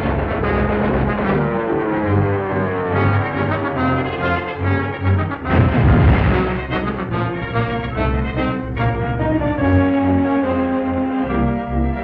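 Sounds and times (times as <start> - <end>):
loud noisy crash: 0.0 - 7.5
orchestral music led by brass: 0.0 - 12.0.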